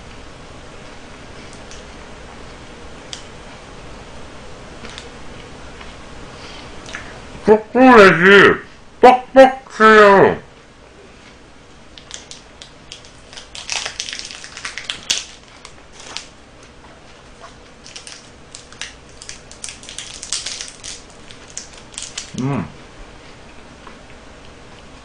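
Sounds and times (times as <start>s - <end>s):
plastic wrappers crinkling: 11.9s - 16.4s, 17.1s - 22.4s
person humming: 22.3s - 22.8s.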